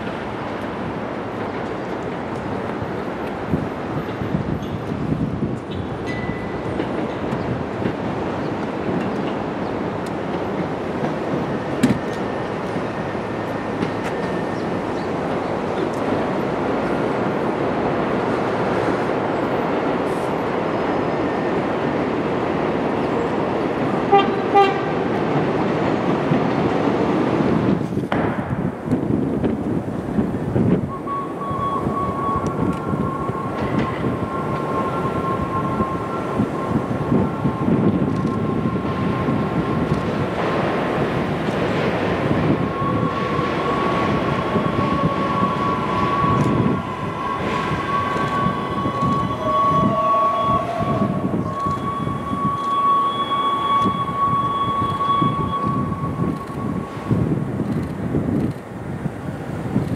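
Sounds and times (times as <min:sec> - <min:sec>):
train wheels rumbling on rails: 0:00.0 - 0:59.9
high-pitched whine: 0:30.9 - 0:40.8, 0:42.3 - 0:58.0
high steady tone: 0:30.9 - 0:41.3, 0:42.2 - 0:57.8.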